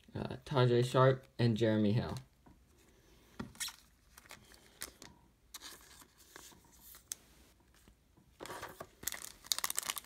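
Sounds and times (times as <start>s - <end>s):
foil card pack crinkling: 8.4s - 10.0s.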